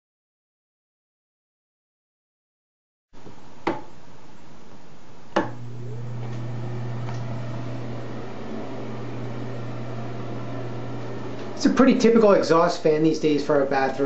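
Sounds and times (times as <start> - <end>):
exhaust fan humming: 5.2 - 14.0.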